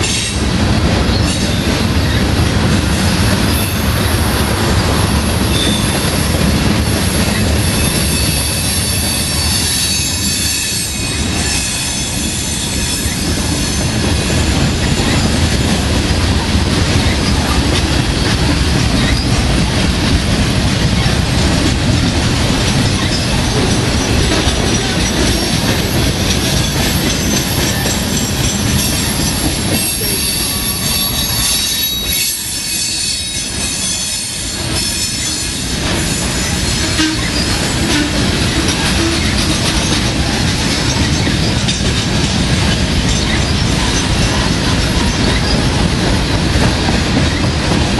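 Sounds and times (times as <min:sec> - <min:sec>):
train wheels rumbling on rail: 0:00.0 - 0:47.9
high metallic wheel squeal: 0:05.2 - 0:06.3, 0:06.9 - 0:14.0, 0:24.0 - 0:41.9.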